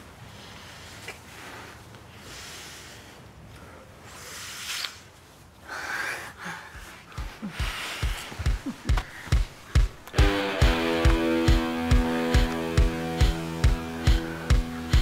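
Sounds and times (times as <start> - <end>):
heavy breathing and gasps: 5.6 - 10.1
deep drum beat: 7.2 - 15.0.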